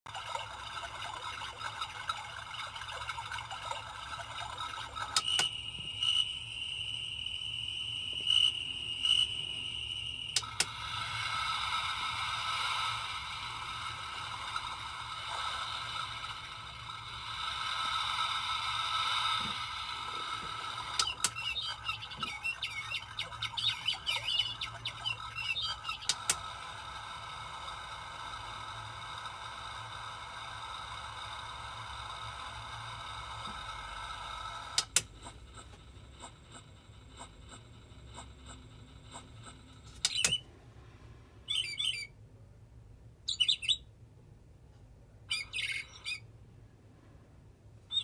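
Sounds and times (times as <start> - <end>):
recorded cricket trill: 3.4 - 40.5
recorded birdsong chirps: 20.9 - 26.3, 40.0 - 40.5, 41.4 - 42.2, 43.2 - 43.9, 45.2 - 46.3.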